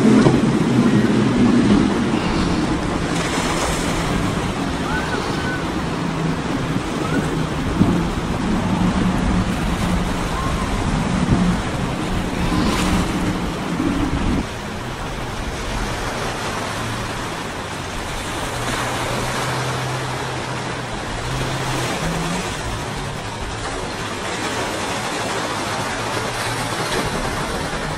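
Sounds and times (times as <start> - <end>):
distant boat engine drone: 0.0 - 27.9
outboard motors running: 0.0 - 27.9
waves: 0.0 - 27.9
wind: 0.0 - 27.9.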